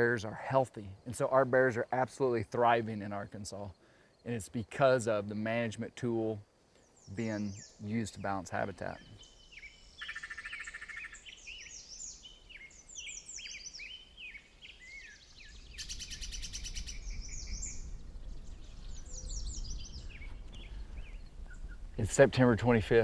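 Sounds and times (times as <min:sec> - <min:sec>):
birds chirping and whistling: 0:06.8 - 0:22.2.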